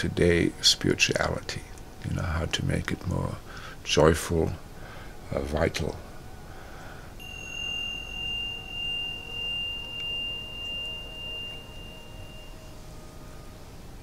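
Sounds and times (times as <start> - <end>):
high metal chime ringing: 7.2 - 14.0.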